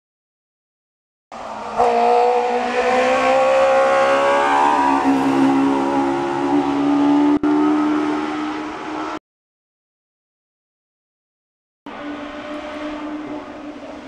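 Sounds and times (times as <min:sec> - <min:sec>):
race car engine at full throttle: 0:01.3 - 0:09.2, 0:11.9 - 0:14.0.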